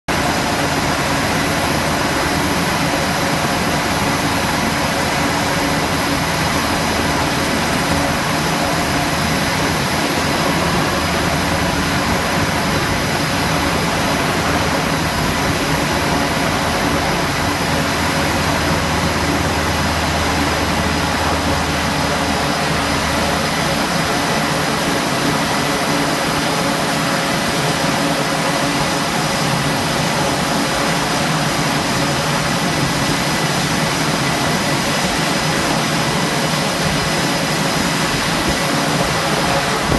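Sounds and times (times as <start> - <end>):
helicopter engines and rotor: 0.1 - 39.9
high turbine whine: 0.1 - 39.9.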